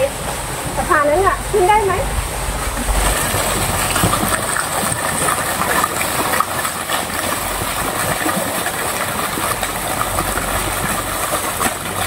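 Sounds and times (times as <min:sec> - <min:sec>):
low steady hum: 0:00.0 - 0:12.0
fountain jet splashing into pond: 0:02.7 - 0:12.0.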